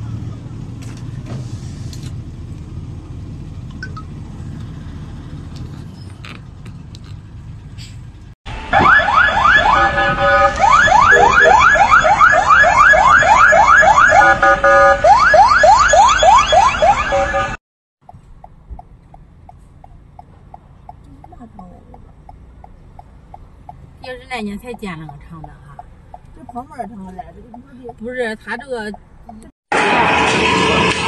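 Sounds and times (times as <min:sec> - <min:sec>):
street traffic rumble: 0:00.0 - 0:31.0
fire engine siren: 0:08.5 - 0:17.6, 0:29.7 - 0:31.0.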